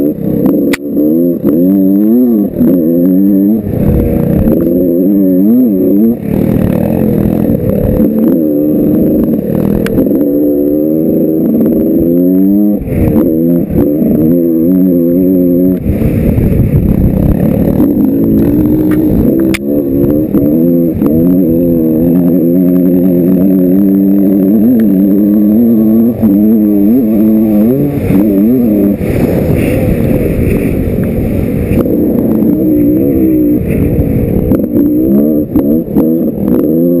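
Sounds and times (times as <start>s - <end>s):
dirt bike engine revving: 0.0s - 37.0s.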